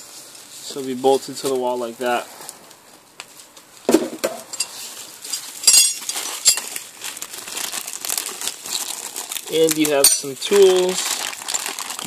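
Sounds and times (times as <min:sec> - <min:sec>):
plastic bags crinkling: 0:02.8 - 0:12.0.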